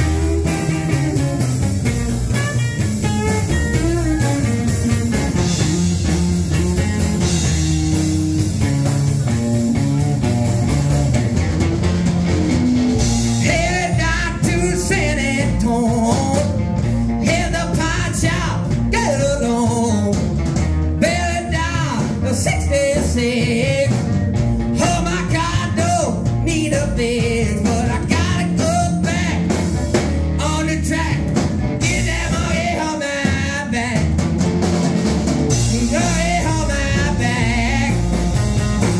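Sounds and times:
drum kit: 0:00.0 - 0:38.9
electric guitar: 0:00.0 - 0:38.9
upright bass: 0:00.0 - 0:38.9
man singing: 0:13.3 - 0:20.3, 0:21.0 - 0:29.7, 0:30.3 - 0:34.3, 0:35.5 - 0:38.9.

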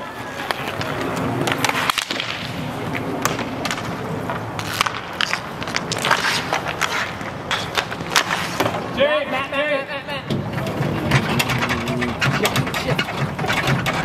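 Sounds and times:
skate wheels rolling and scraping: 0:00.0 - 0:14.0
sticks and puck clacking: 0:00.0 - 0:14.0.

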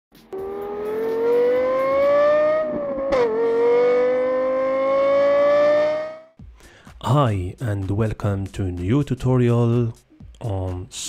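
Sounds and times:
car engine accelerating: 0:00.2 - 0:06.4.

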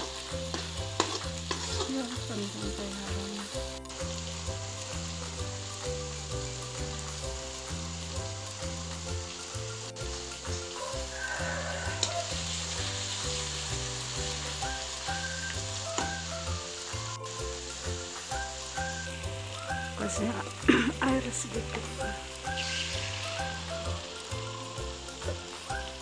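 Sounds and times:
metal spoon stirring: 0:00.0 - 0:02.2
background music with bass line: 0:00.0 - 0:26.0
paste sizzling in oil: 0:00.0 - 0:26.0.

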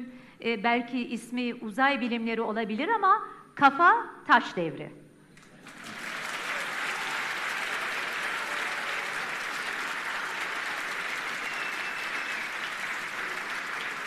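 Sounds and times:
audience applauding: 0:05.4 - 0:14.0.

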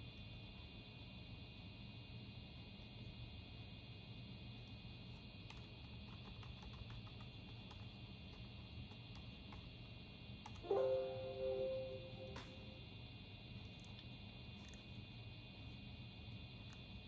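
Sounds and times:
computer room hum: 0:00.0 - 0:17.0
two-note computer alert chime: 0:10.6 - 0:12.7.

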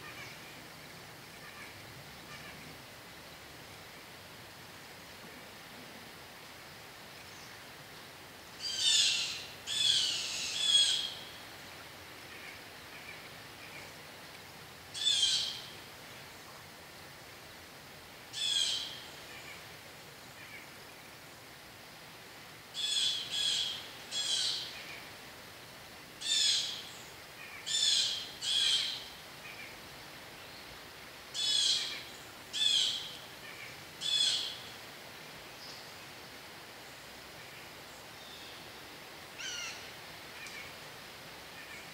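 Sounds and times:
bird calling: 0:08.6 - 0:11.4, 0:15.0 - 0:15.7, 0:18.4 - 0:19.6, 0:22.8 - 0:25.0, 0:26.2 - 0:29.7, 0:31.3 - 0:34.7, 0:39.4 - 0:40.7.

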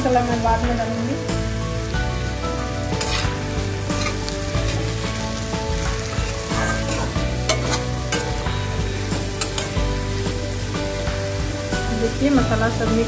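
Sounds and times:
potatoes sizzling in hot oil: 0:00.0 - 0:13.0
metal spatula scraping pan: 0:02.9 - 0:05.1, 0:06.0 - 0:08.6, 0:09.3 - 0:09.9.

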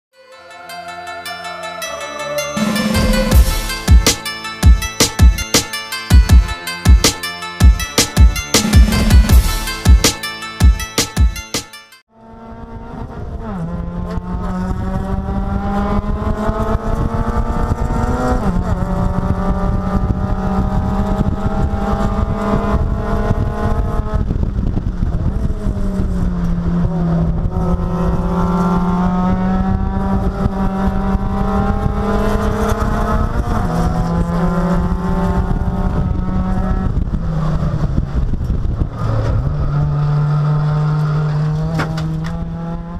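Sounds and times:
race car engine revving: 0:12.2 - 0:42.9.

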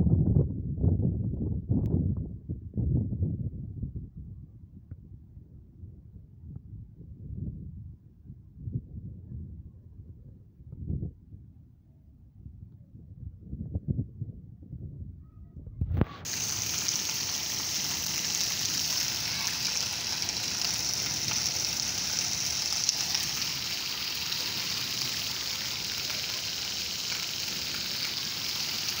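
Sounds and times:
heavy rain hissing: 0:16.2 - 0:29.0
rainwater running: 0:16.2 - 0:29.0.

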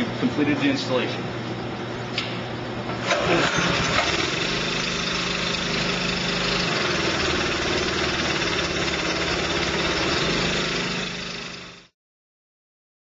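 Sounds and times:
sprayer engine running: 0:03.0 - 0:11.9.

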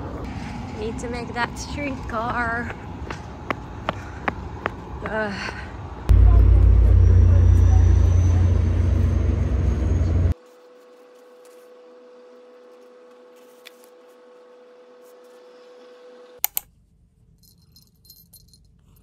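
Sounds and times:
street noise: 0:00.0 - 0:10.4
steady indoor hum: 0:00.0 - 0:18.8.

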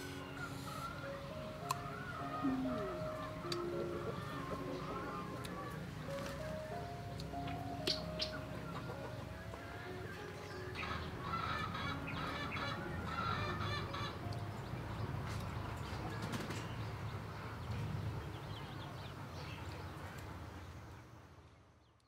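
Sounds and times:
chickens clucking: 0:00.0 - 0:14.6.

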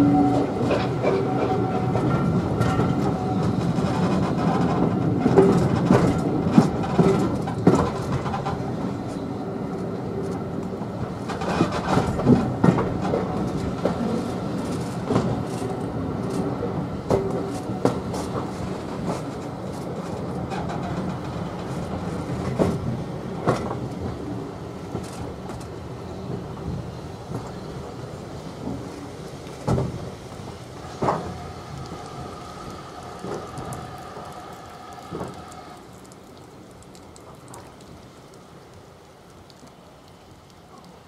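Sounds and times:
train wheels clattering: 0:00.0 - 0:09.2
train clanks: 0:00.0 - 0:37.9.

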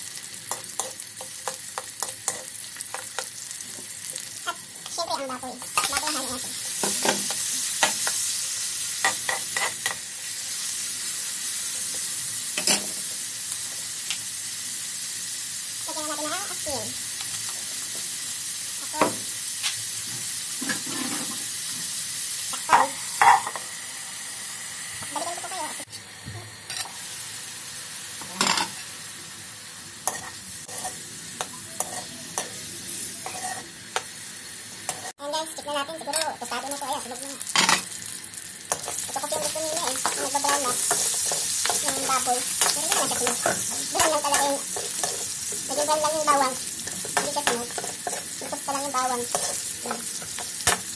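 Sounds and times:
meat sizzling in hot oil: 0:00.0 - 0:50.9
metal ladle scraping a wok: 0:33.2 - 0:33.6.

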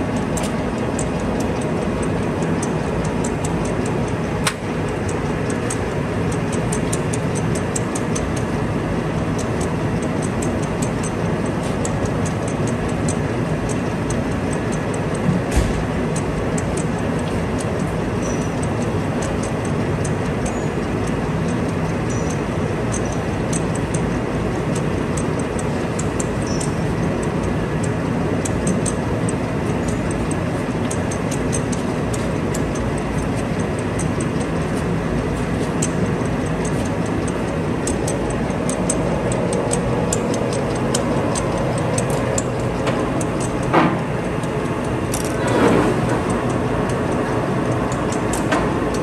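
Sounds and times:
turret ticks and clicks: 0:00.0 - 0:45.5, 0:46.1 - 0:49.0
lathe humming: 0:26.8 - 0:49.0.

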